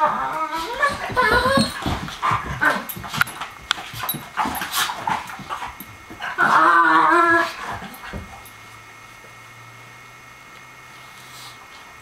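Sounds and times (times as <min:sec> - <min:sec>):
high-pitched dog whine: 0:00.0 - 0:03.4, 0:04.0 - 0:08.2
dogs scuffling and snuffling: 0:00.4 - 0:08.6.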